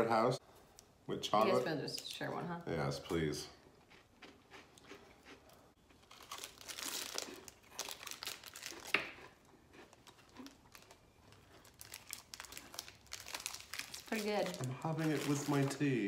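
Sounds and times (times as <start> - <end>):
snack wrapper crackling: 4.5 - 15.9.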